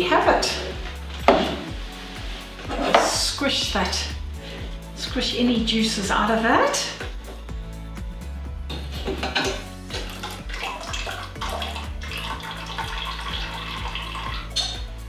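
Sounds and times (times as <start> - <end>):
tea trickling and dripping: 9.9 - 14.9.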